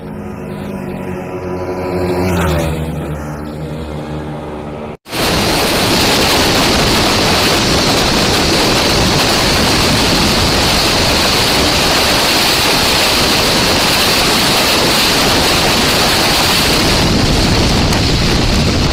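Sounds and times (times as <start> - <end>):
wind rushing over microphone: 5.1 - 18.9.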